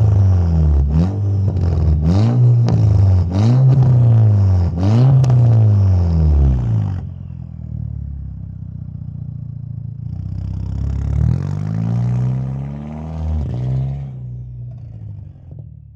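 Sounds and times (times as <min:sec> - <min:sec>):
car revving and driving off: 0:00.0 - 0:07.4, 0:10.0 - 0:15.7
car engine idling: 0:06.9 - 0:11.1.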